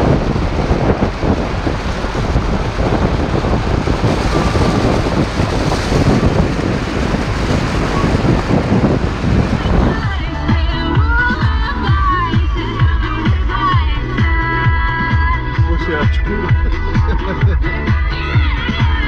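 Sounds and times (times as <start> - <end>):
wind buffeting microphone: 0.0 - 17.0
music: 7.4 - 19.0.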